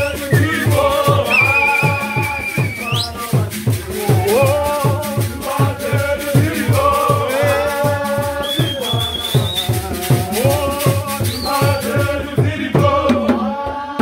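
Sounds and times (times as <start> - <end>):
high whistle: 0.0 - 3.3, 8.4 - 9.9, 11.2 - 12.0
shaken rattles: 0.0 - 12.4
low drum beat: 0.0 - 13.5
group singing church song: 0.0 - 14.0.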